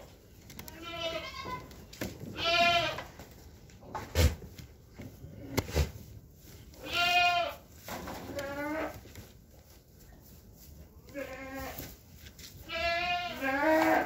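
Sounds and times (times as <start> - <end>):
goats bleating: 0.6 - 1.7, 2.3 - 3.1, 6.8 - 7.6, 11.1 - 11.8, 12.6 - 14.0.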